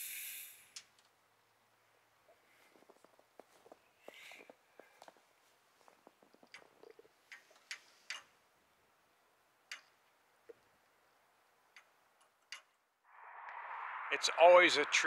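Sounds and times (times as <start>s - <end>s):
faint clicks and ticks: 5.8s - 8.3s, 9.6s - 12.8s.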